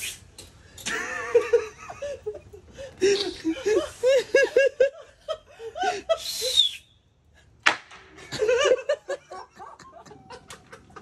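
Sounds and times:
people laughing: 0.9 - 6.2, 8.2 - 11.0
wooden boards slapped together: 7.6 - 8.1.

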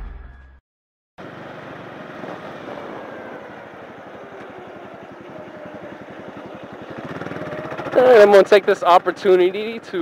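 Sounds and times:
motorcycle engine running: 2.7 - 10.0.

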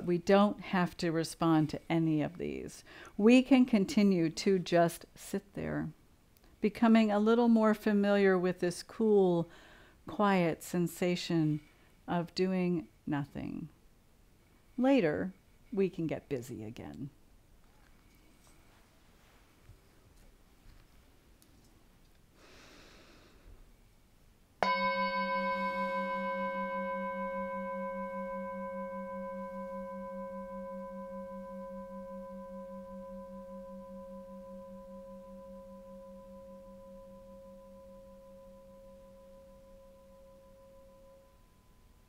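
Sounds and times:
singing bowl ringing: 24.6 - 42.0.

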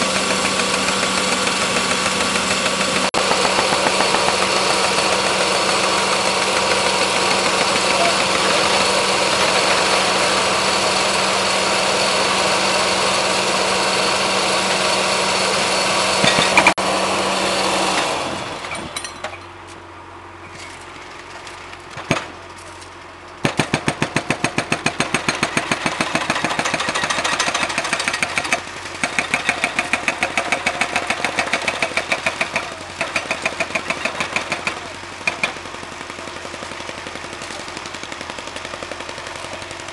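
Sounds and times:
small engine knocking: 0.0 - 10.4, 23.4 - 39.9.

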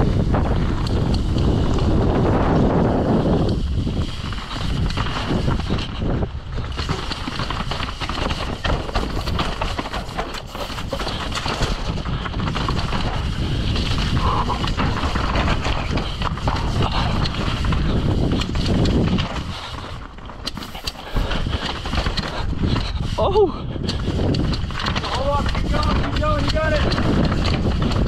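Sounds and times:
bike chain and frame rattling: 0.0 - 28.0
wind buffeting microphone: 0.0 - 28.0
tyre noise on dirt: 0.1 - 23.3.

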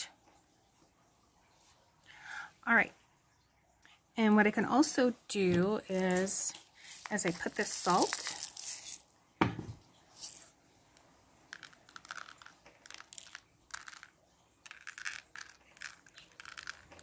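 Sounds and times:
salt grains rustling on paper: 5.9 - 9.1, 10.2 - 10.5
thump: 9.4 - 9.8.

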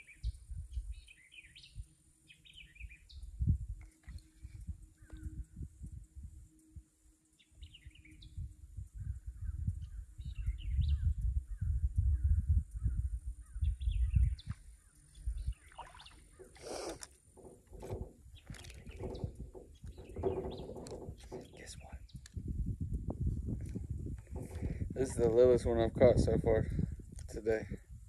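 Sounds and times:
low rumble on microphone: 0.0 - 1.9, 2.5 - 28.0
small birds chirping: 0.0 - 3.4, 6.5 - 22.5.

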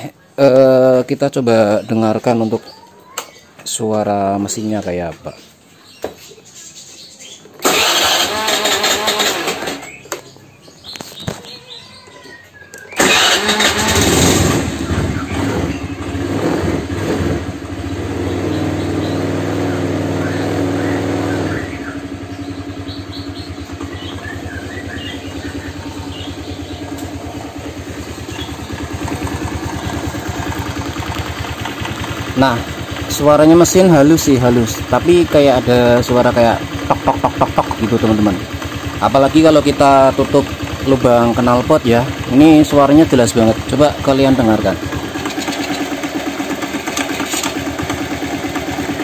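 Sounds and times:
scooter engine starting and idling: 7.4 - 49.0
light knocking in engine: 21.6 - 49.0.

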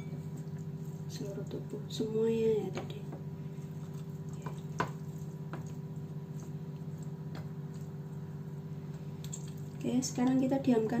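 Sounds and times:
steady low hum: 0.0 - 11.0
wet squishes of hands on chicken: 3.4 - 9.8.

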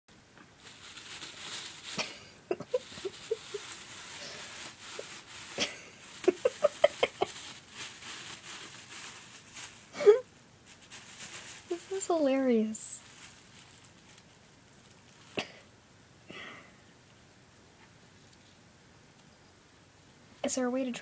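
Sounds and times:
plastic bags rustling: 0.4 - 15.6.

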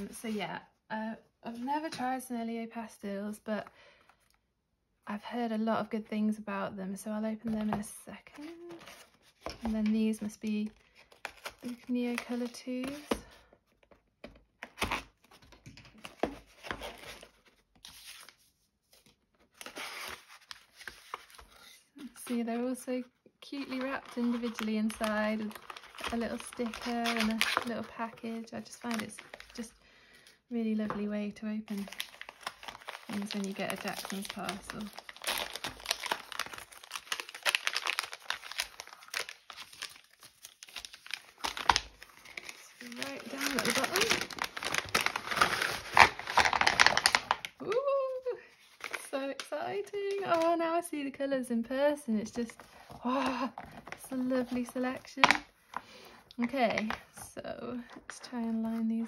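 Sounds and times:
paper bag crinkling: 23.8 - 28.1, 31.7 - 47.7.

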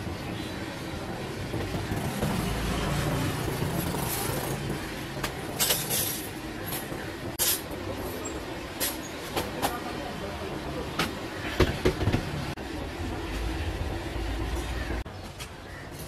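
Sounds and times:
passing traffic rumble: 0.0 - 15.7
steel utensils clinking: 3.7 - 9.5.

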